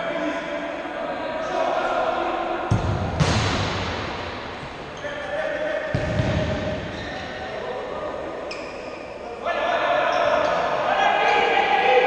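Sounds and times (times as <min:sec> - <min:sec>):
ball kicked and bouncing: 0:02.7 - 0:03.8, 0:05.9 - 0:06.8
solid ball thud: 0:02.7 - 0:04.0.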